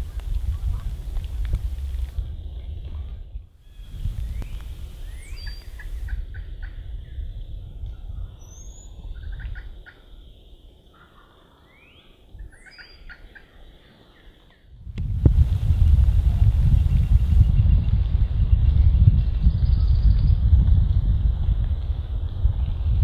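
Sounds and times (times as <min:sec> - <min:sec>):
wind rumbling on microphone: 0:00.0 - 0:23.0
small birds chirping: 0:03.6 - 0:14.7
turkey gobbling: 0:05.1 - 0:06.8, 0:12.6 - 0:13.5.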